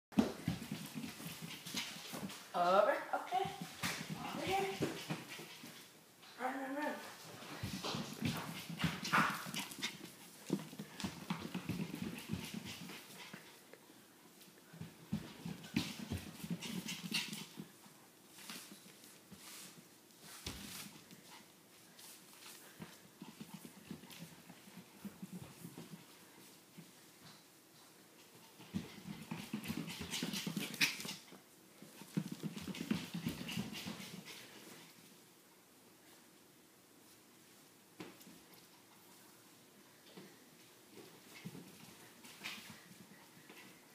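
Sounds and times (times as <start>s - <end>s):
feet and paws pattering on wood floor: 0.2s - 6.0s, 7.0s - 35.3s, 37.0s - 43.9s
footsteps in socks: 7.2s - 13.2s, 14.4s - 30.8s.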